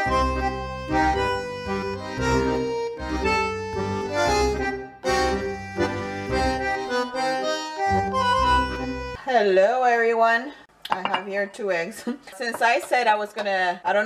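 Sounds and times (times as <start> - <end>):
instrumental intro music: 0.0 - 9.2.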